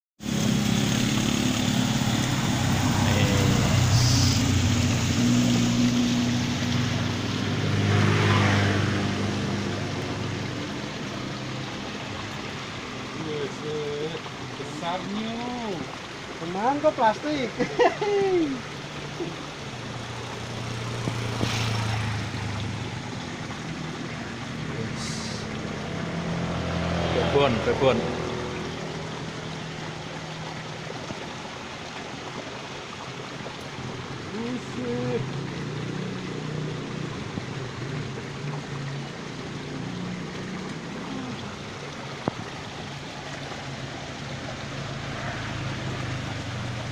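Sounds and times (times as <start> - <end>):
motor engine running: 0.2 - 12.6
stream water rushing: 0.2 - 46.9.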